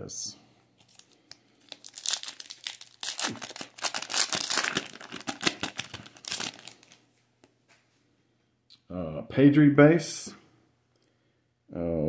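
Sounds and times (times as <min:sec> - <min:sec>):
wrapper crinkling and tearing: 0:00.8 - 0:07.0.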